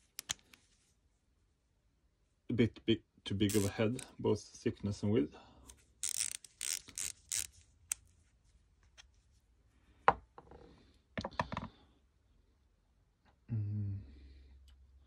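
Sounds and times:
ratchets clinking: 6.0s - 7.5s.

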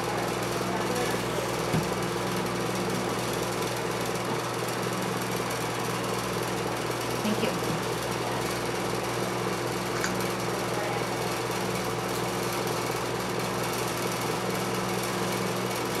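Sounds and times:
mechanical hum: 0.0s - 16.0s.

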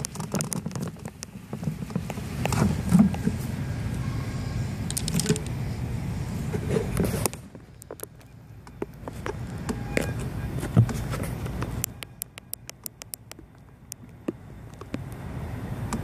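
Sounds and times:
wind: 0.0s - 16.0s
freewheel clicking: 4.8s - 5.5s, 11.6s - 14.1s.

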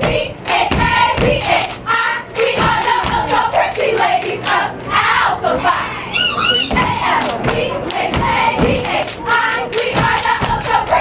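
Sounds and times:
crowd voices: 2.6s - 11.0s.

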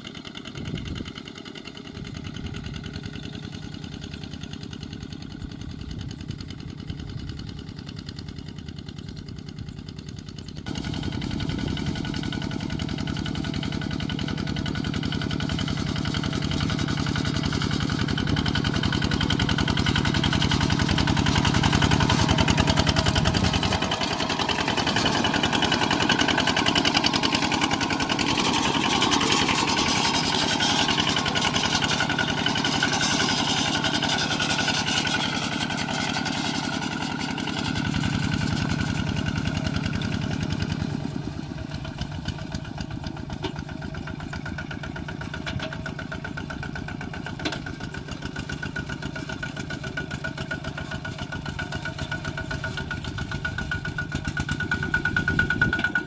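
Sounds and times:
diesel walking tractor engine running: 0.0s - 56.0s
wheels churning through water: 10.7s - 56.0s.

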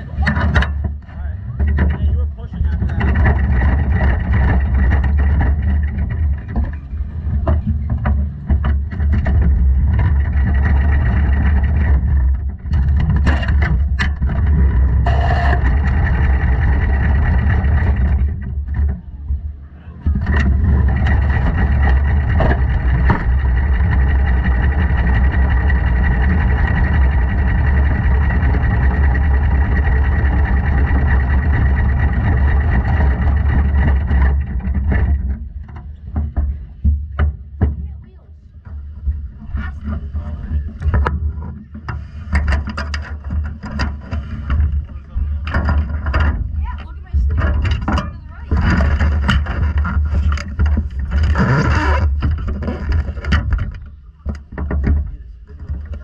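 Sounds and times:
race car engines running hard: 0.0s - 35.9s.

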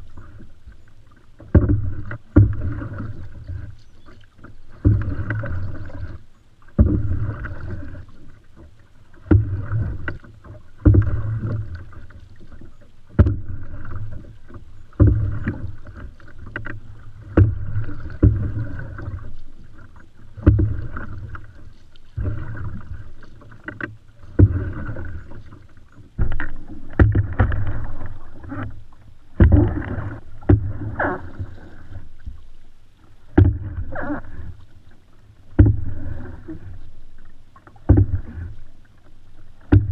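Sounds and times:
paddle splashing in water: 0.0s - 39.9s.

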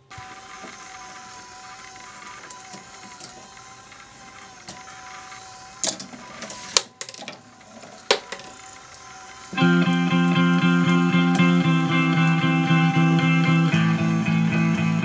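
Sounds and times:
motor-driven chain lift whirring: 0.0s - 15.0s
marbles clacking on plastic track: 1.8s - 9.6s.

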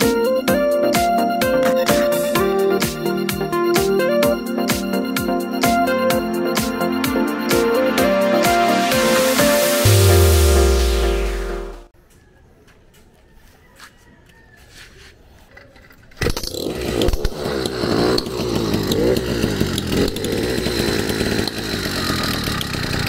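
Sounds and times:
two-stroke engine idling: 16.2s - 23.0s.

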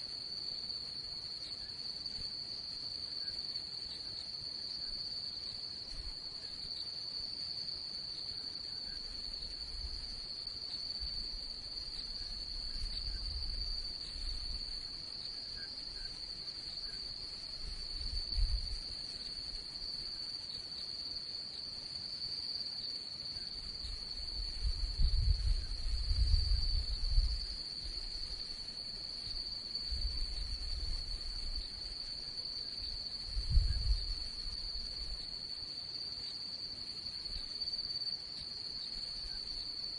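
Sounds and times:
night crickets chirping: 0.0s - 39.9s.

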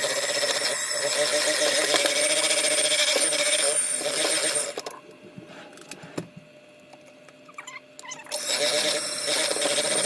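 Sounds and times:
electric mixer motor hum: 0.0s - 4.8s, 8.3s - 10.0s.

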